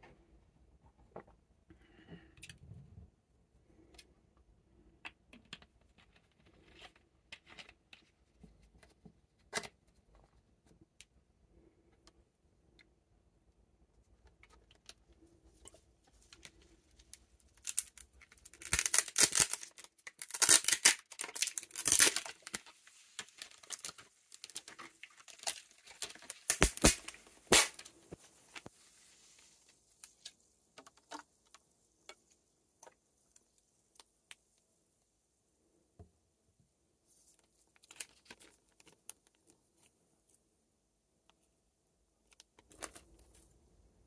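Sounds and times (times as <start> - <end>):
plastic label tearing: 17.6 - 27.9
plastic bottle crackling: 17.6 - 28.8.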